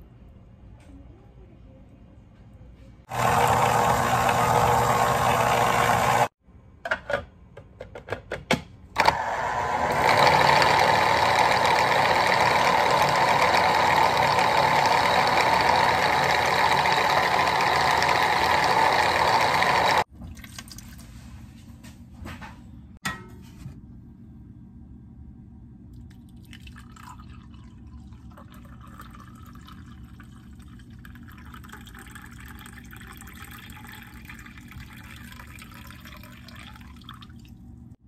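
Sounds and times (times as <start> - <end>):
juicer motor whirring: 3.1 - 6.3, 9.0 - 20.1.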